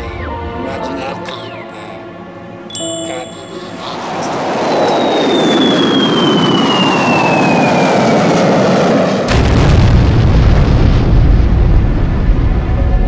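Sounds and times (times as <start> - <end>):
rushing noise: 3.5 - 13.0
deep rumbling: 4.2 - 13.0
explosion: 9.1 - 13.0.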